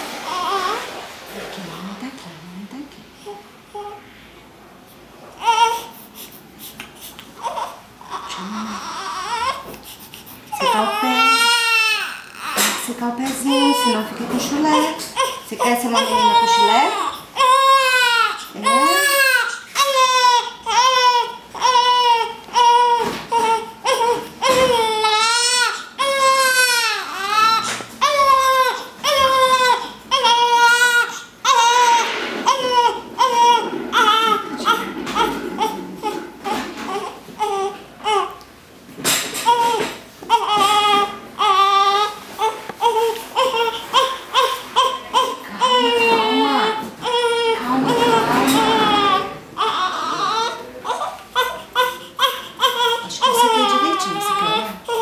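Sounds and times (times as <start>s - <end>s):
baby crying: 5.4s - 5.9s, 7.4s - 9.7s, 10.5s - 12.8s, 13.4s - 38.4s, 39.4s - 55.0s.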